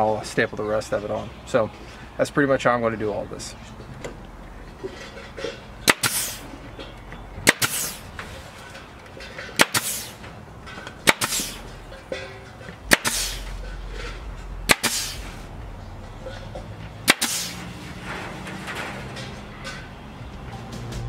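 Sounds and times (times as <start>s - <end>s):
pneumatic staple gun firing: 5.9s - 6.4s, 7.4s - 8.1s, 9.6s - 10.2s, 11.0s - 11.7s, 12.9s - 13.5s, 14.7s - 15.3s, 17.1s - 17.6s
short hiss of air: 7.6s - 8.1s, 9.7s - 10.2s, 11.2s - 11.7s, 13.0s - 13.5s, 14.8s - 15.4s, 17.2s - 17.6s.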